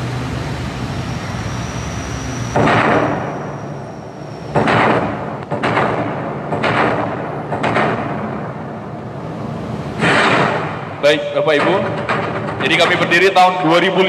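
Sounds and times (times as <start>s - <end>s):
heavy percussive hits: 10.0s - 13.6s.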